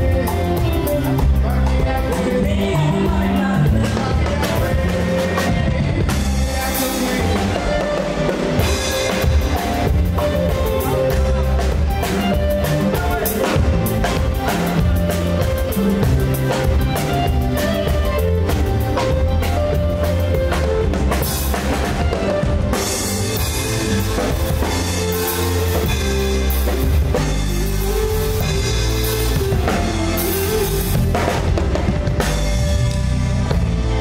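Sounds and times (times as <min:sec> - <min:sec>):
drum kit: 0:00.0 - 0:34.0
live band playing: 0:00.0 - 0:34.0
saxophone: 0:00.0 - 0:34.0.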